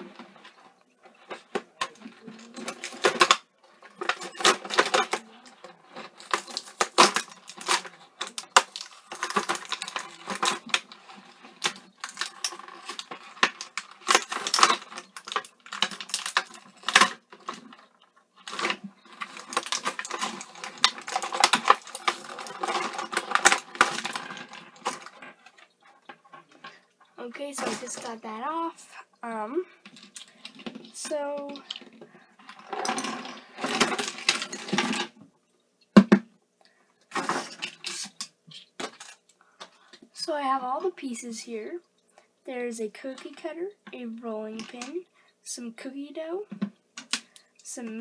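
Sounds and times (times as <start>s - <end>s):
plastic packaging crackling: 0.0s - 35.2s.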